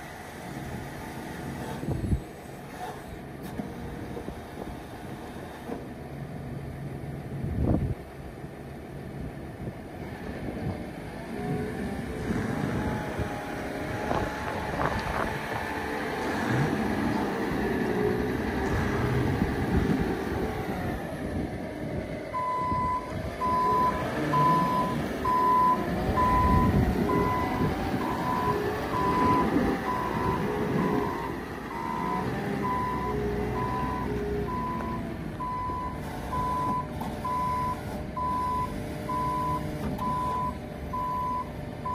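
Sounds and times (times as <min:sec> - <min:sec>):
diesel engine running: 0:00.0 - 0:41.9
reverse alarm beeping: 0:22.4 - 0:41.9.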